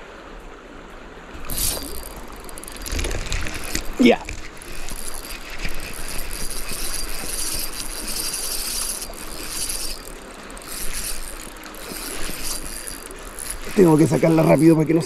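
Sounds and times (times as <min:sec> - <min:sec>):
river current rushing: 0:01.3 - 0:15.0
fishing reel clicking whir: 0:01.4 - 0:15.0.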